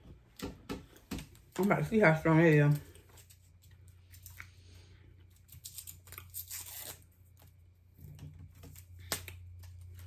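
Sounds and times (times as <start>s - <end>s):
candy wrapper tearing: 5.4s - 7.6s.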